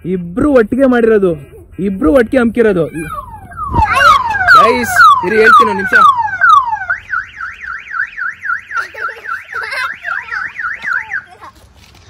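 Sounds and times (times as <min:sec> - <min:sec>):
car alarm siren: 0:03.1 - 0:11.3.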